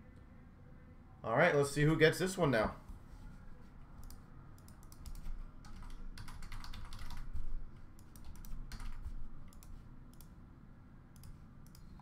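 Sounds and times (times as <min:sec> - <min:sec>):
computer keyboard typing: 0:04.0 - 0:10.3.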